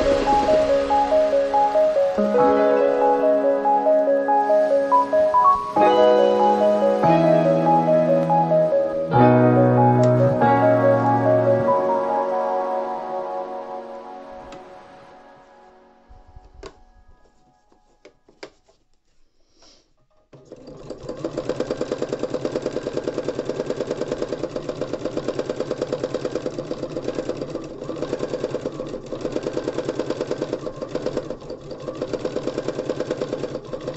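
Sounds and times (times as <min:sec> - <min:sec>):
sewing machine stitching: 0:20.3 - 0:33.9.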